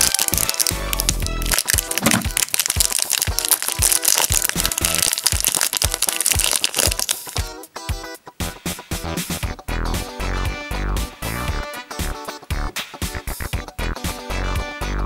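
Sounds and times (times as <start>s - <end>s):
plastic bag crinkling: 0.0s - 7.5s
upbeat background music: 0.0s - 15.0s.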